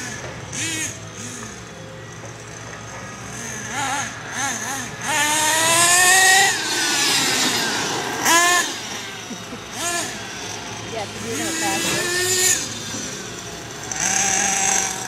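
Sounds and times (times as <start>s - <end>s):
rc car motor whining: 0.0s - 15.0s.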